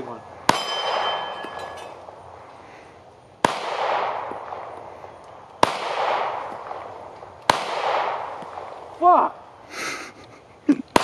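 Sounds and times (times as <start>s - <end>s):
pistol shots echoing: 0.4s - 2.2s, 3.4s - 4.9s, 5.6s - 8.9s.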